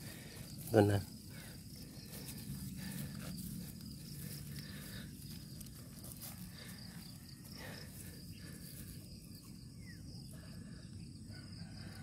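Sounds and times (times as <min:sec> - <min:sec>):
soil rustling by hand: 0:00.0 - 0:09.1
insects chirring: 0:00.0 - 0:12.0.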